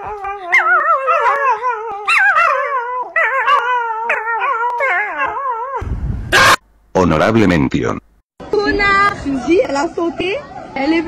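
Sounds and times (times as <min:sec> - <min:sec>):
puppy howling: 0:00.0 - 0:06.6.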